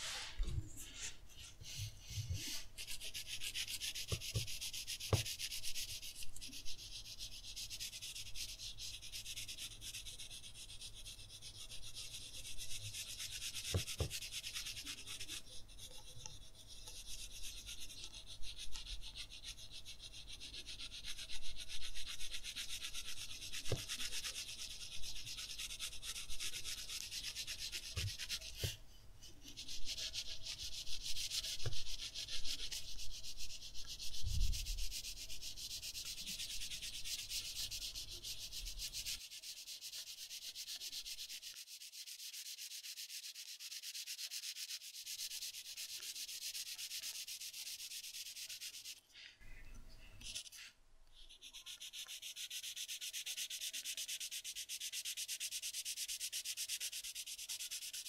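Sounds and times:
pencil shading on paper: 0.0 - 49.0, 50.2 - 58.0
pencil knocking on drawing surface: 4.0 - 5.4, 13.5 - 14.4, 23.5 - 24.1, 27.7 - 28.8, 31.4 - 32.3.

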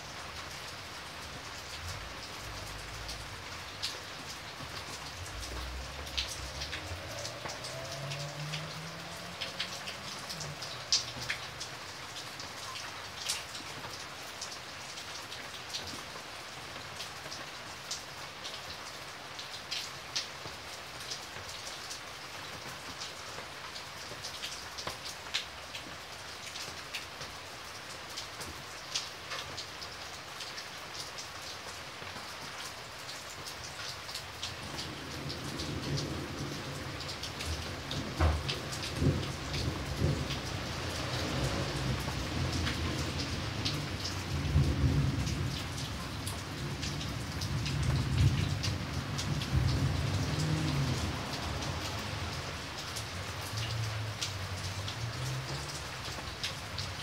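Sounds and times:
rain hissing: 0.0 - 18.2, 32.8 - 57.0
raindrops splashing: 0.0 - 57.0.

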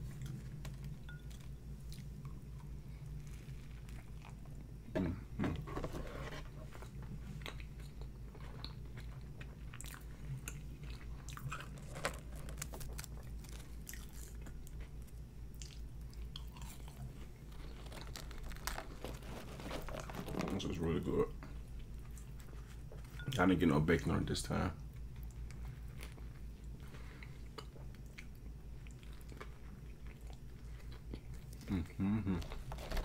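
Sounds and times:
chewing with mouth clicks: 7.3 - 11.9, 12.8 - 18.8, 24.9 - 32.7.

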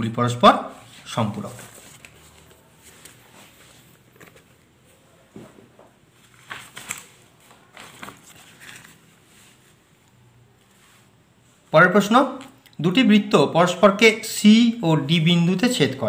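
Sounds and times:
book and paper rustling: 0.8 - 11.1.

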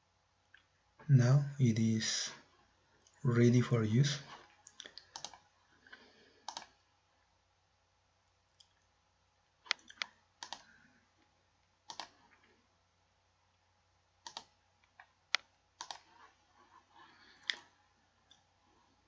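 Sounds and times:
faint computer mouse clicks: 4.7 - 5.4, 6.4 - 6.8, 9.6 - 10.7, 11.9 - 12.2, 14.2 - 16.1.

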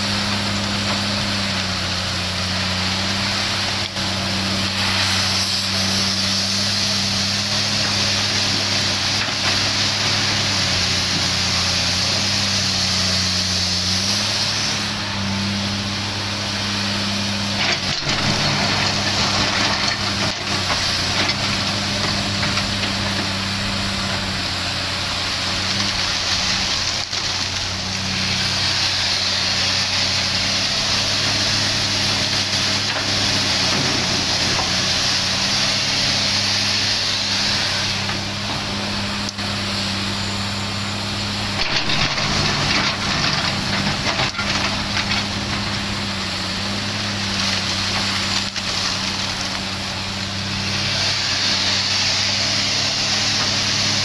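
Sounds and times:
excavator diesel engine running: 0.0 - 54.0
hydraulic hiss: 0.1 - 48.4, 50.3 - 54.0.

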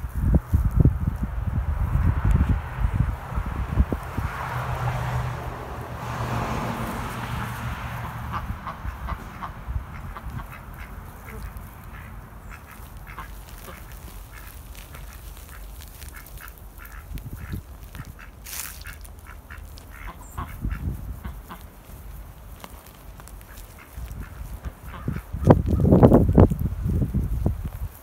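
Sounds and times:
ducks quacking: 6.3 - 21.8, 23.3 - 26.0.

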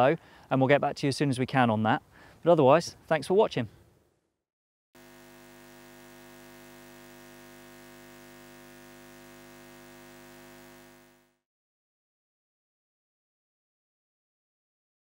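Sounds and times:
faint hum of held tones: 5.0 - 11.4.

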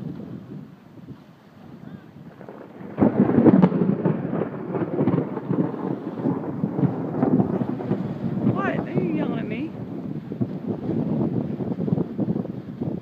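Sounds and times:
waves splashing against seawall: 0.0 - 13.0
wind buffeting microphone: 0.0 - 13.0.

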